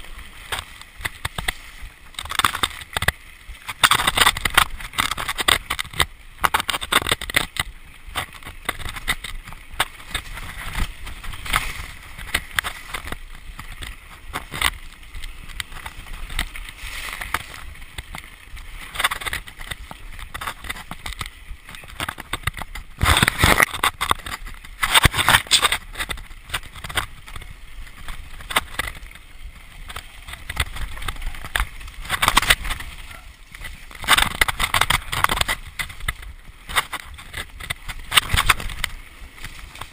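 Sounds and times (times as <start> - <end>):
mountain bike rattling over rough trail: 0.0 - 39.9.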